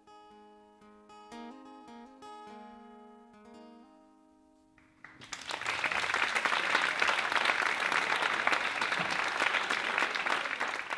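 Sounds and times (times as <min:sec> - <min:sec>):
audience applauding: 0:04.9 - 0:10.9.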